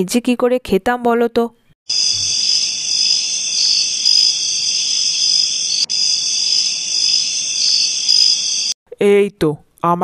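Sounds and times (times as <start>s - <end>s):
crickets chirping: 1.9s - 8.8s.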